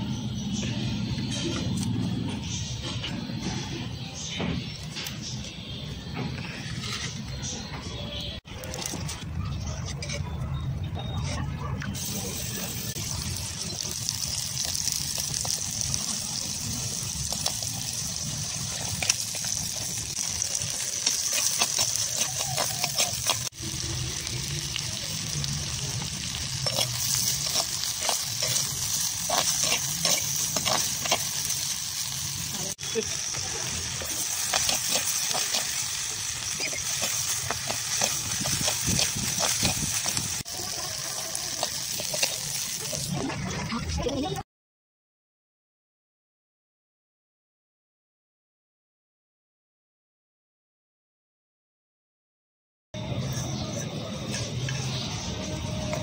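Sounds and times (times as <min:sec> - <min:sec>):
oil sizzling in a pot: 0:12.0 - 0:43.2
metal spoon stirring pot: 0:17.3 - 0:23.6, 0:26.0 - 0:31.8, 0:33.6 - 0:43.4.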